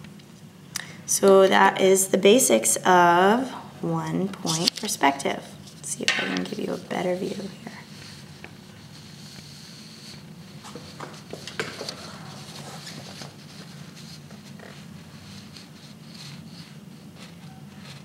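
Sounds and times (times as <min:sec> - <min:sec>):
steady low hum: 0:00.0 - 0:18.0
paper rustles and taps: 0:10.7 - 0:12.0.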